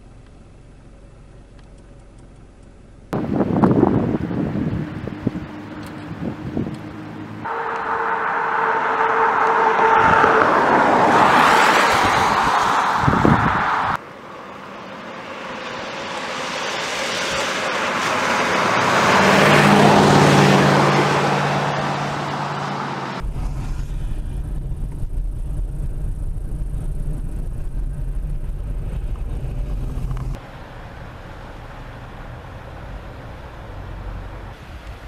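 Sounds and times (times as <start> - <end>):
driving on wet road interior rumble: 0.0 - 8.3, 23.0 - 35.0
vehicle passing on wet road: 3.2 - 35.0.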